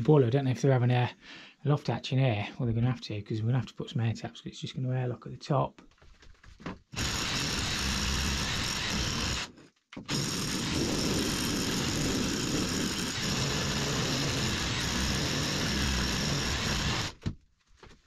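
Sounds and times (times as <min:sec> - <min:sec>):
power drill boring through wood: 0:06.9 - 0:17.4.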